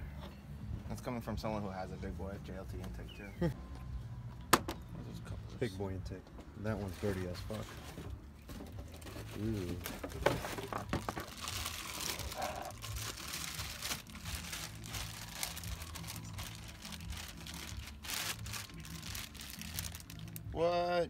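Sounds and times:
plastic parts rustling and clicking: 8.5 - 20.4.

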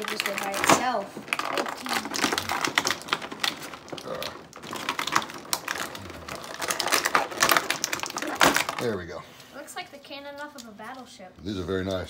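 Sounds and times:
plastic blister tray crackling: 0.0 - 9.2.

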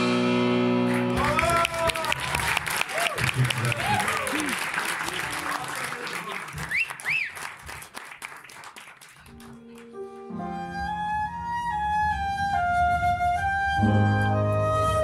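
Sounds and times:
audience applause: 0.9 - 10.2
short whistles: 6.6 - 7.5
flute melody: 10.0 - 15.0.

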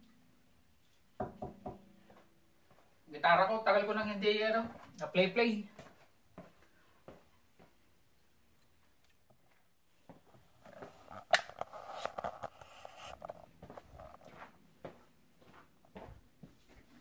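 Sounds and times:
footsteps in a room: 0.8 - 3.1, 4.5 - 17.0
rustling: 9.4 - 14.6.

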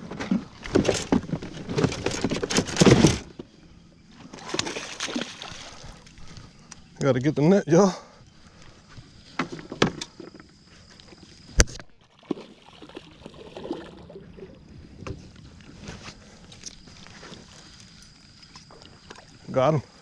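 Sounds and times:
knocks and clatter in a boat: 0.0 - 3.6, 9.3 - 10.5, 14.9 - 15.4.

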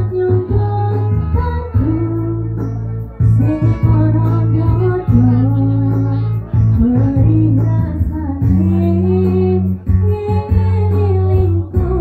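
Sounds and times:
deep bass line: 0.0 - 12.0
instrumental backing: 0.0 - 12.0
woman singing into a microphone: 0.0 - 12.0.

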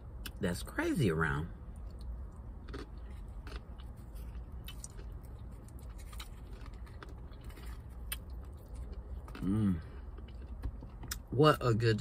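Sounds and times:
low background rumble: 0.0 - 12.0
chewing food: 1.7 - 11.3.

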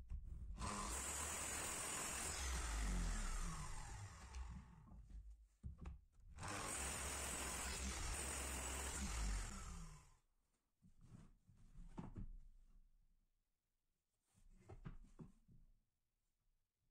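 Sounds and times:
miter saw cutting wood: 0.6 - 4.7, 6.4 - 10.0.

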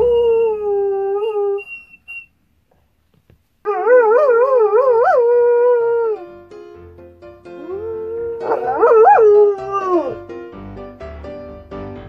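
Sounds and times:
dog howling: 7.6 - 10.2.

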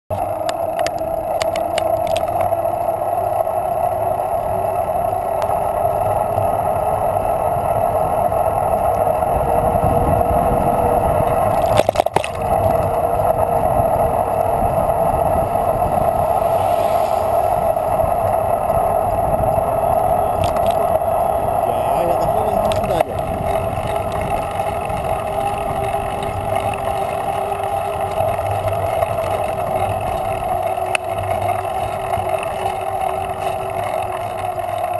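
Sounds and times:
bike tyres rolling on asphalt: 0.1 - 34.9
wind rumble: 7.4 - 33.6.

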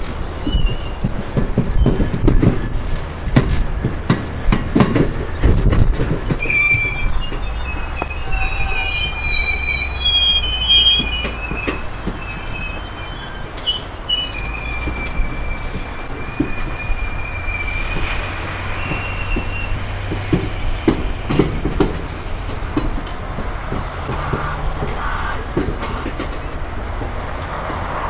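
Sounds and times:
low rolling rumble: 0.0 - 28.0
wagons clunking on rails: 0.0 - 28.0
wheel flanges squealing: 0.0 - 28.0.

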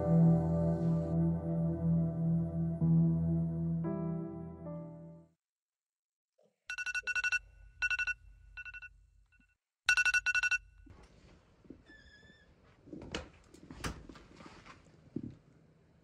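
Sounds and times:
phone alarm rapid high beeps: 6.7 - 8.9, 9.9 - 10.6
door squeaking open: 11.8 - 12.6.

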